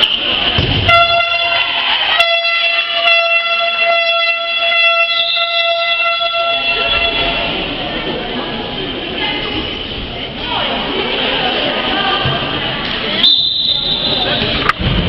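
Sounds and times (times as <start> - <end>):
scoreboard horn long electronic blast: 0.8 - 7.6.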